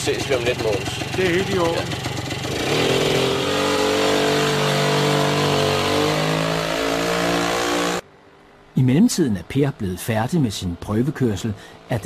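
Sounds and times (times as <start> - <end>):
small engine pulling away: 0.0 - 8.0.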